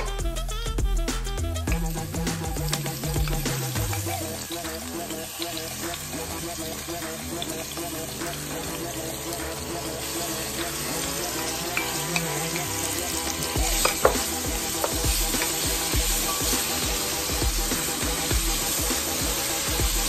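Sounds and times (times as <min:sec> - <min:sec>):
onions sizzling in a pan: 0:01.7 - 0:20.0.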